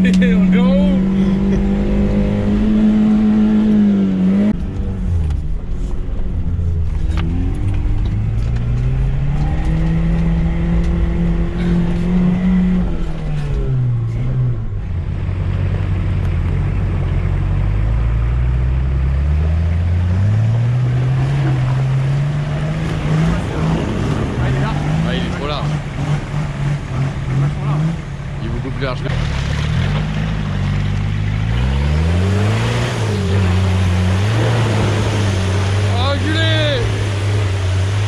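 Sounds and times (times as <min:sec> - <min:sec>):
vehicle engine revving: 0:00.0 - 0:38.0.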